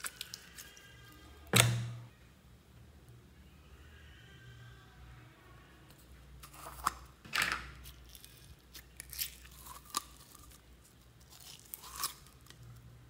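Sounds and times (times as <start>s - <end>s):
plastic cup crinkling: 0.0s - 0.8s, 6.4s - 12.8s
slime squishing and crackling: 0.0s - 1.0s, 7.8s - 12.8s.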